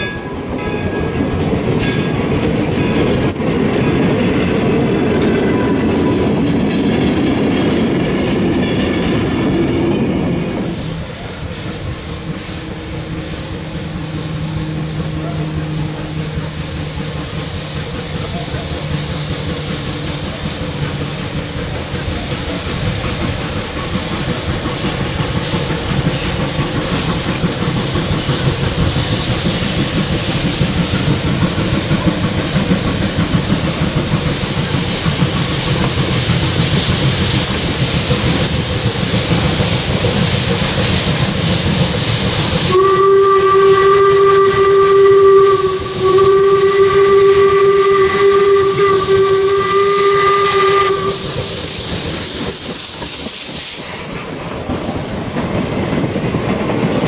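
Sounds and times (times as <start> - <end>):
steam locomotive running: 0.0 - 57.0
steam whistle blasts: 42.5 - 52.0.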